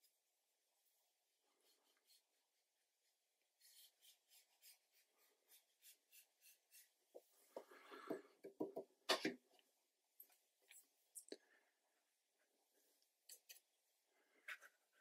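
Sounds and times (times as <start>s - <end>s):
brush scratching on paper: 1.5s - 7.2s.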